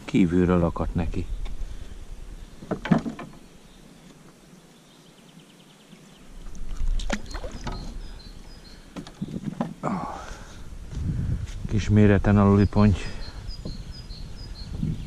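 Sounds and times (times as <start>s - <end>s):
water splashing against boat: 6.6s - 8.1s.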